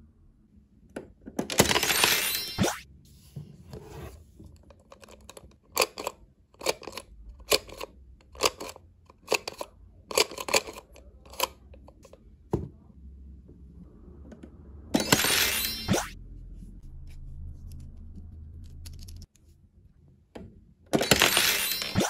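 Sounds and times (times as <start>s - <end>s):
plastic toy mechanism clicking: 4.8s - 12.2s.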